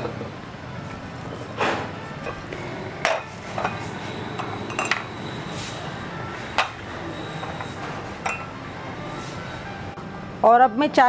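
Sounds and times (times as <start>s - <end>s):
teacups and saucers clinking: 3.0s - 5.1s, 7.5s - 8.5s.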